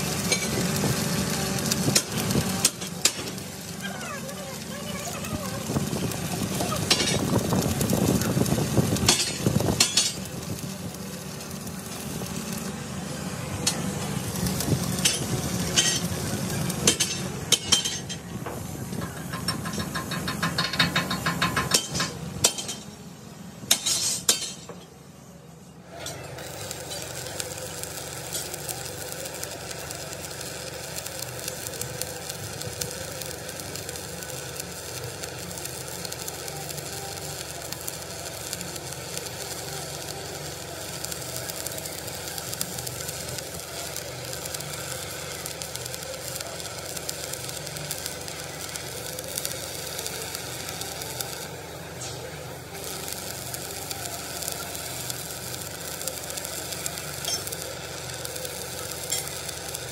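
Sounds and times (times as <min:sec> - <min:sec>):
steady machine noise: 0:00.0 - 0:23.8, 0:26.0 - 0:59.9
crackling workshop noise: 0:00.0 - 0:59.9
steel clanking and clinking: 0:16.8 - 0:23.0.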